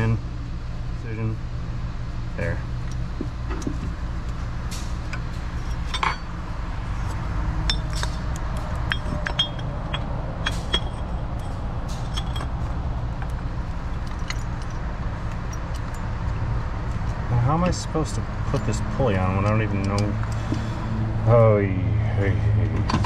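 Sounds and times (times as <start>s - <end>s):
steady low hum: 0.0s - 23.0s
small metallic clinks and taps: 5.1s - 6.3s, 7.6s - 12.6s.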